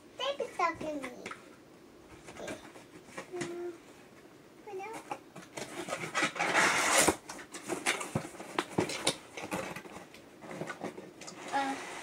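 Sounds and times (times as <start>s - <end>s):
cardboard scraping and rustling: 4.9s - 12.0s.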